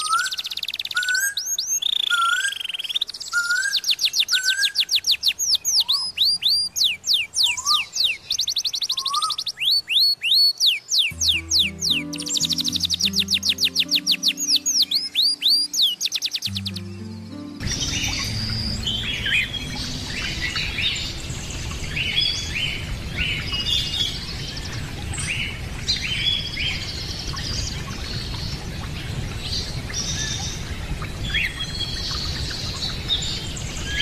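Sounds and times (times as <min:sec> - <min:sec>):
birds chirping and calling: 0:00.0 - 0:28.9, 0:29.5 - 0:34.0
steady low rumble: 0:17.0 - 0:25.8.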